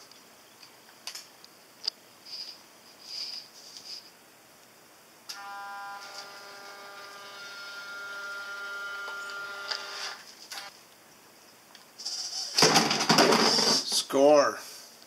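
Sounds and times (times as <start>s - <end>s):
short high buzzes: 5.3s - 10.7s.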